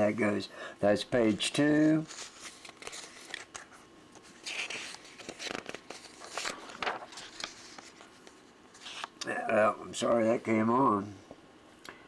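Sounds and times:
paper rustling and crinkling: 1.3s - 9.1s.

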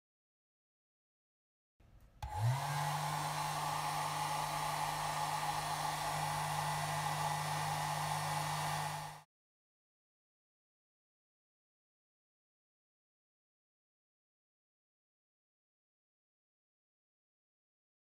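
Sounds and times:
hair dryer running: 2.2s - 9.3s.

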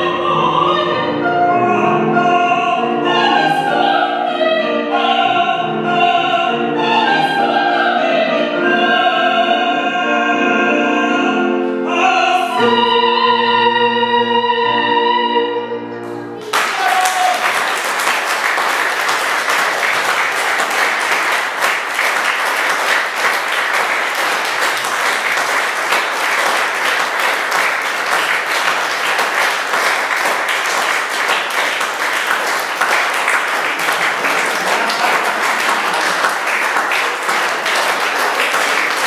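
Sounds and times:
audience applauding: 16.4s - 39.0s.

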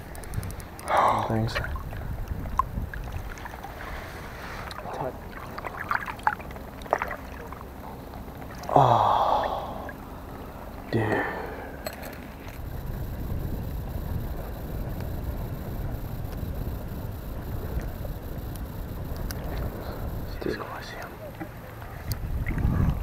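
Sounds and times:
wind on microphone: 0.0s - 4.3s, 12.5s - 20.9s, 21.8s - 23.0s
person gasping: 8.7s - 9.9s, 11.0s - 11.8s.

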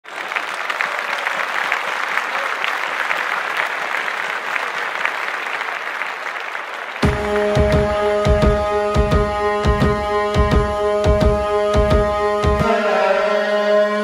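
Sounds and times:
audience applause: 0.0s - 8.2s.

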